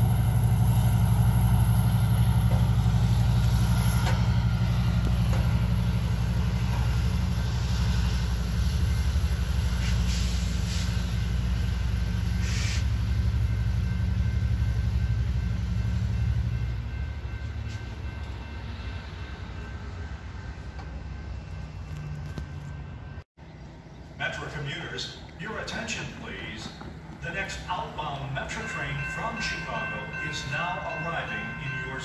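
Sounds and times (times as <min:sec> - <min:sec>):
diesel locomotive engine humming: 0:00.0 - 0:32.0
air hisses: 0:12.4 - 0:12.9.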